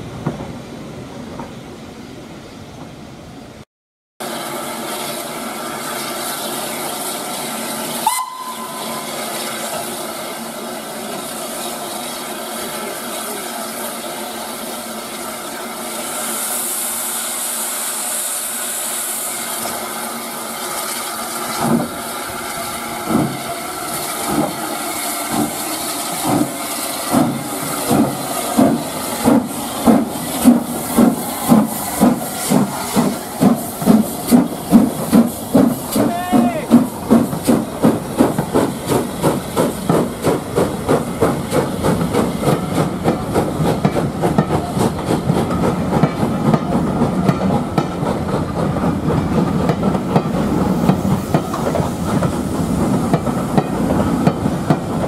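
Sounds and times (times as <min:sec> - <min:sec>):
steam hissing: 0:04.2 - 0:55.0
steam locomotive whistle: 0:07.9 - 0:09.4
locomotive exhaust beats: 0:25.3 - 0:55.0.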